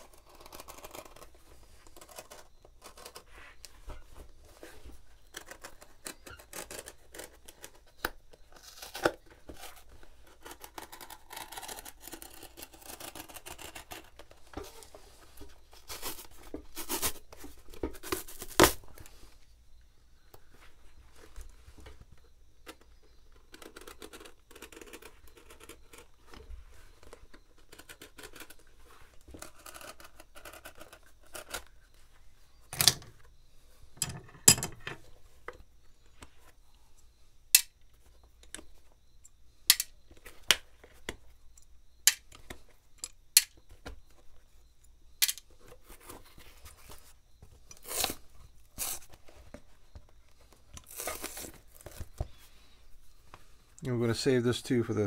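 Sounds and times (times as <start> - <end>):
rustling and scraping: 0.0 - 37.2, 42.4 - 53.8
tools clicking and tapping: 34.0 - 35.0.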